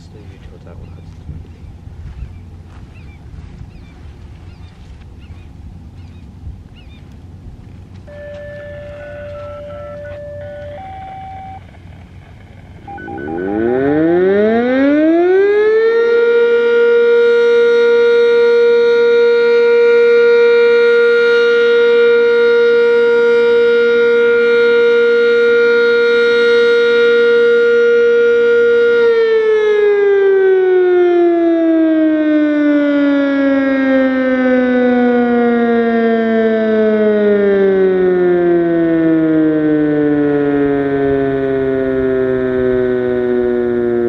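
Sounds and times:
warning siren steady tone: 8.0 - 44.0
siren winding down wail: 8.1 - 11.8, 12.8 - 44.0.

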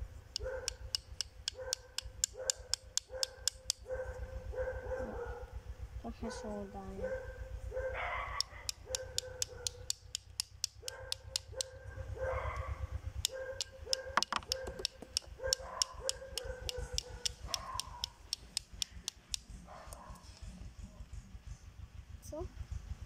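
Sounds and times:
fast even ticking: 0.2 - 4.6, 8.2 - 19.6.

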